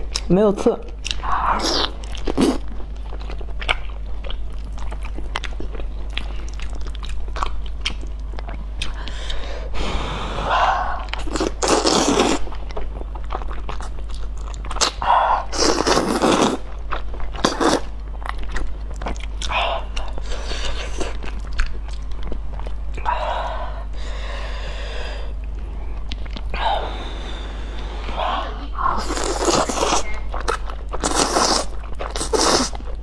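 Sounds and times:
wet chewing: 0.9s - 9.4s, 11.0s - 23.1s, 25.4s - 26.6s, 28.8s - 33.0s
person slurping noodles: 9.8s - 12.4s, 15.5s - 16.6s, 28.1s - 30.1s, 31.0s - 32.7s.

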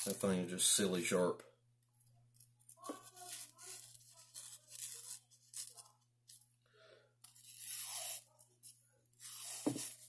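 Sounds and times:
knife scraping arm hair: 7.3s - 8.4s.

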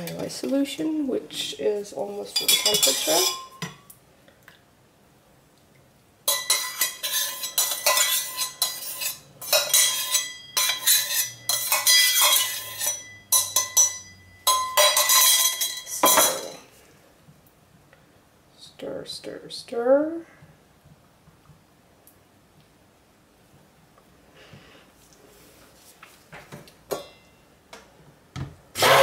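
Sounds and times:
metal spoon scraping a steel pitcher: 2.4s - 3.6s, 6.3s - 16.6s.

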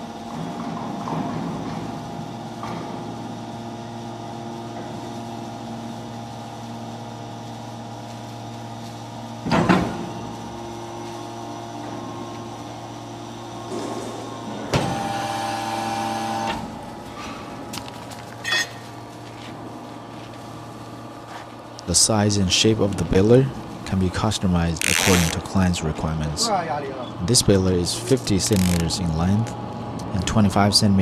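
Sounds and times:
hydraulic pump humming: 9.1s - 30.3s
hydraulic whine: 11.7s - 16.8s.

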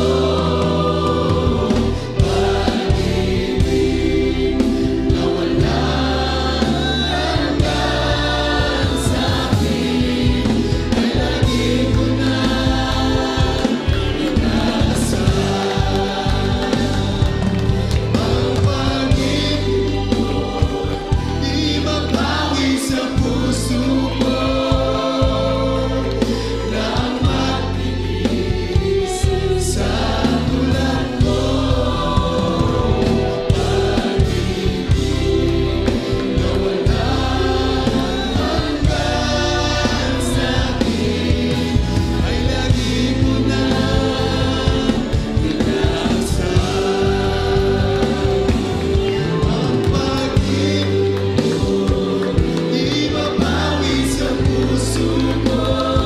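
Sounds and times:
choir singing: 0.0s - 56.0s
instrumental backing: 0.0s - 56.0s
man singing into microphone: 49.2s - 56.0s.

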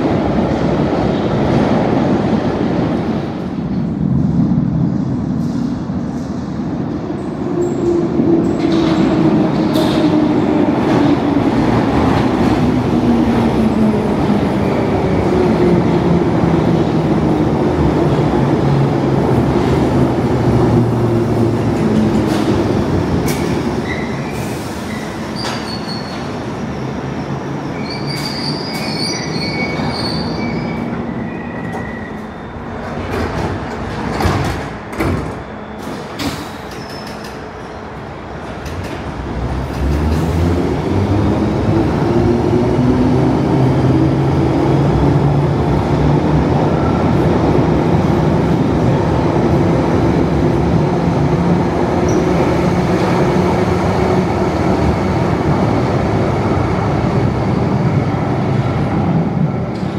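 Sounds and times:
train rumble: 0.0s - 29.1s, 29.7s - 59.9s
wheel and brake squeals: 23.8s - 32.8s.

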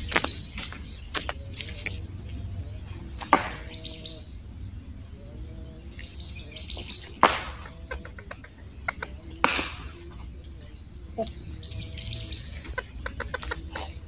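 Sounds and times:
birds chirping: 0.0s - 14.0s
sharp knocks: 3.2s - 3.7s, 7.1s - 7.7s, 9.0s - 10.0s.

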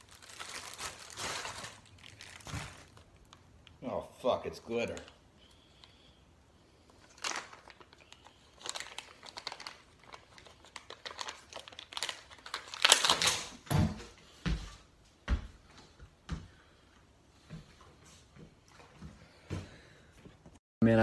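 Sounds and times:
plastic packaging crinkling and tearing: 0.0s - 3.8s, 4.8s - 5.2s, 6.9s - 13.6s.

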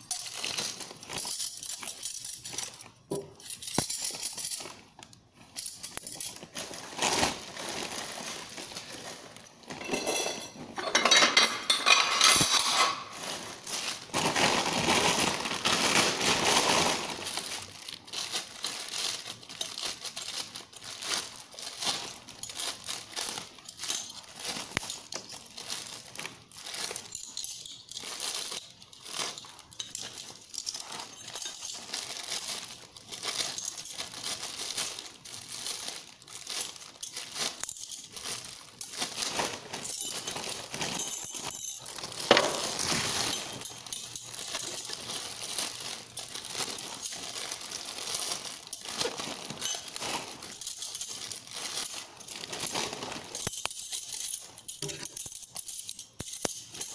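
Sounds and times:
plastic packaging crinkling: 0.0s - 56.9s
cutlery clinking: 9.7s - 13.2s.

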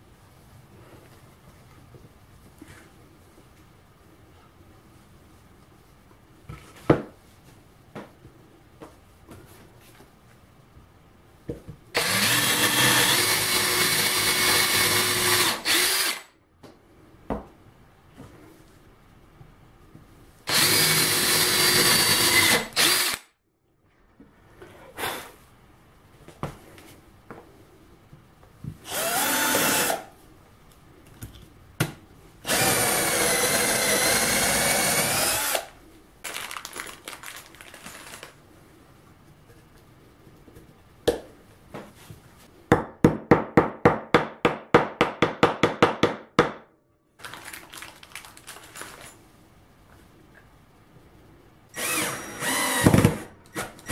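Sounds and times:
cordless drill boring into wood: 12.0s - 16.3s, 20.5s - 23.3s, 28.8s - 30.0s, 32.5s - 35.7s, 51.8s - 53.0s
rapid pulsing drill: 12.0s - 16.3s, 20.5s - 23.2s, 28.9s - 30.0s, 32.5s - 35.7s, 51.8s - 53.0s.

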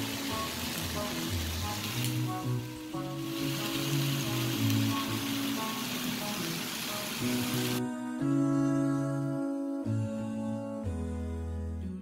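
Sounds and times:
chicken sizzling on grill: 0.0s - 7.8s
background music: 0.0s - 12.0s.

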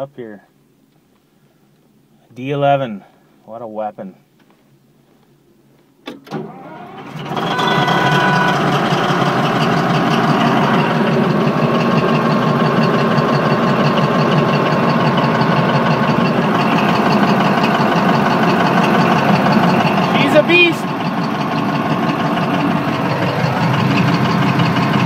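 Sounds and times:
diesel engine cranking and idling: 6.1s - 25.0s.

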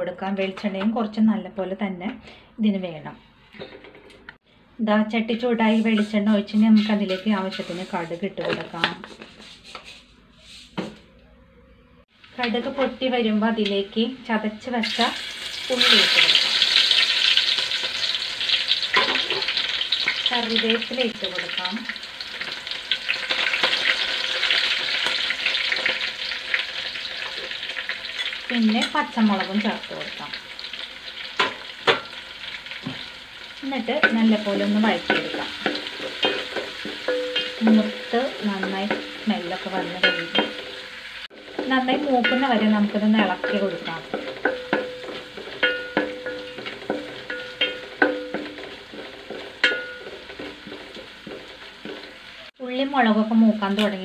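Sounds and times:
sizzling and crackling in oil: 5.6s - 8.3s, 14.6s - 54.0s
spatula knocking and scraping pan: 5.8s - 10.0s, 18.9s - 20.2s, 31.4s - 32.2s, 33.9s - 52.5s.

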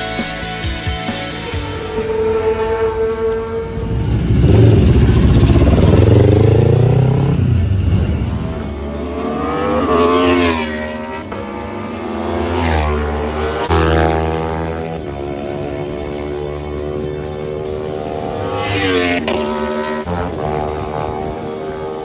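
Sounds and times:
motorcycles revving past: 1.9s - 22.0s.

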